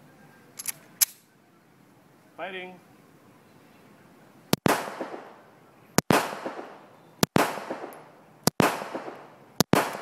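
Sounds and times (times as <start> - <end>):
pistol shots with echo: 4.6 - 5.4, 6.0 - 10.0.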